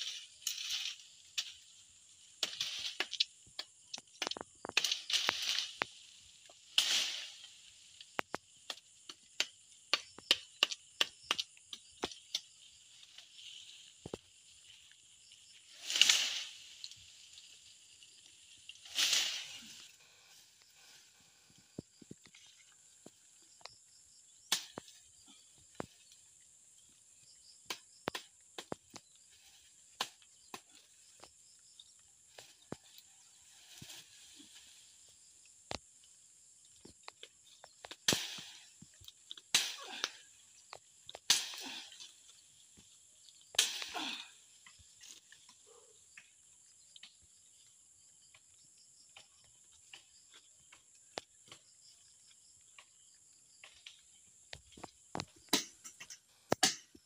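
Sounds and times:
leafy branches rustling: 0.0s - 3.1s, 4.8s - 8.2s, 12.5s - 23.5s, 32.1s - 35.2s
high insect drone: 0.0s - 56.6s
wooden pole knocking branches: 2.3s - 14.3s, 24.5s - 25.0s, 27.6s - 29.2s, 36.8s - 42.9s, 43.5s - 44.2s, 54.6s - 57.0s.

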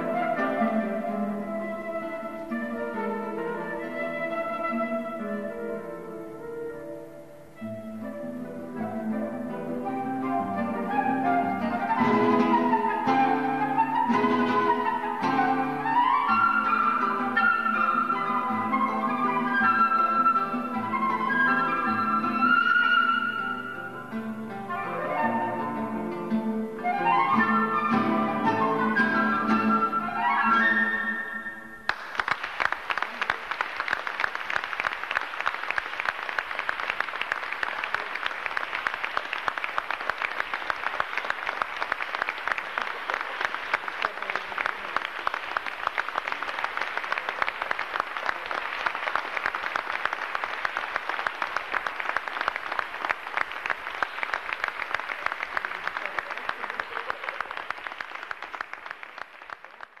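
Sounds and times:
flute and guitar piece: 0.0s - 31.9s
audience applauding: 10.2s - 24.3s, 26.8s - 60.0s.

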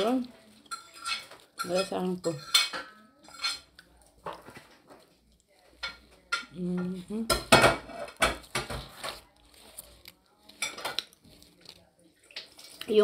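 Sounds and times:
leaf wrapper rustling and crackling: 8.5s - 13.0s
eating sounds: 8.9s - 13.0s.

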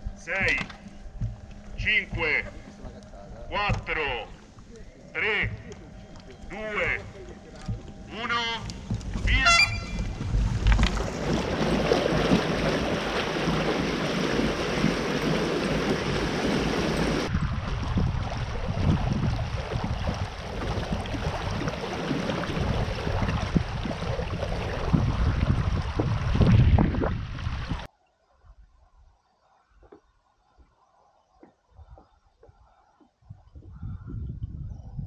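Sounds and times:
water lapping against hull: 0.3s - 27.9s
wind buffeting microphone: 5.4s - 27.9s, 33.2s - 35.0s.

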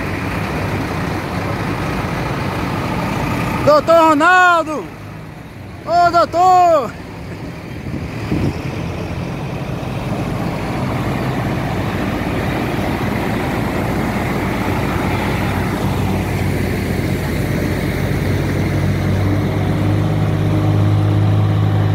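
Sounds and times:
heavy vehicle engines running: 0.0s - 21.9s
rumbling noise: 7.0s - 21.9s.

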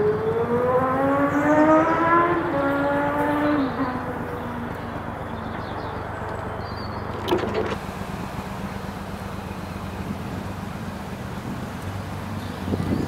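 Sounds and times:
diesel engine idling: 3.8s - 13.0s.

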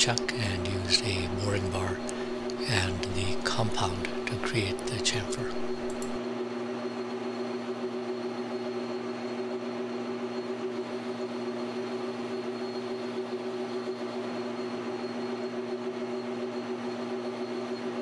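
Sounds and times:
metal lathe humming: 0.0s - 6.2s.

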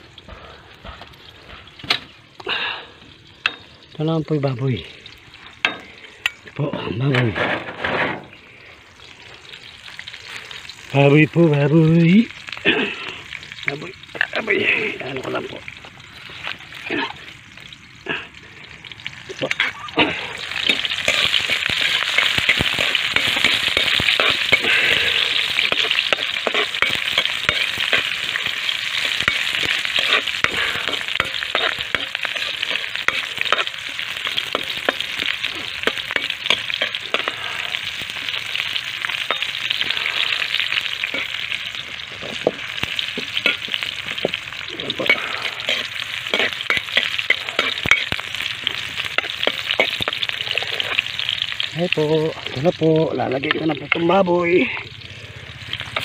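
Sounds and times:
food sizzling in oil: 0.0s - 56.0s
spatula scraping a pan: 19.4s - 37.9s, 42.2s - 51.2s.

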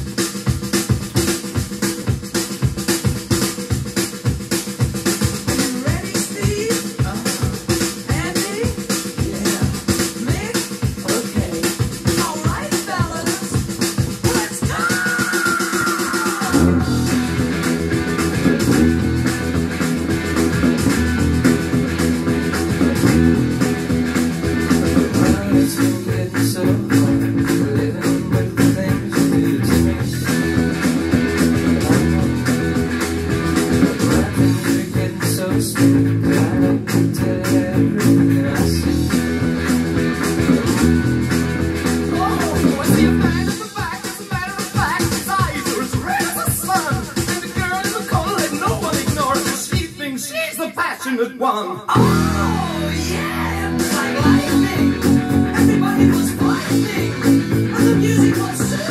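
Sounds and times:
rock music with drums and guitar: 0.0s - 50.0s, 51.9s - 58.9s
electric bass guitar: 16.5s - 43.6s, 51.9s - 58.9s.

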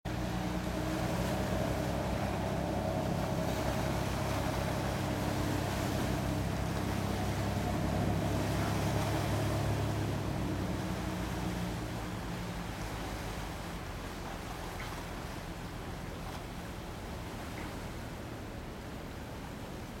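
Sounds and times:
higher steady hum: 0.1s - 14.5s
boat engines droning: 0.1s - 20.0s.

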